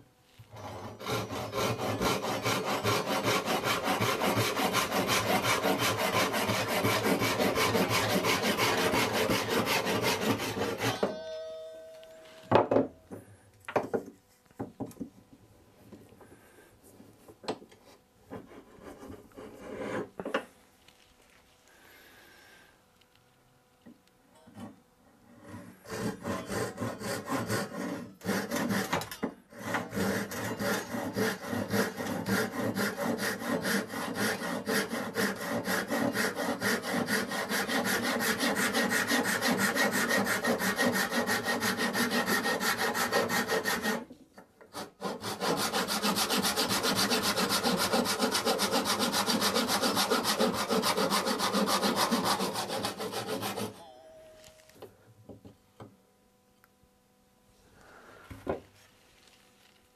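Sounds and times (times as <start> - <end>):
saw cutting through wood: 0.5 - 11.1, 25.4 - 44.1, 44.7 - 53.8.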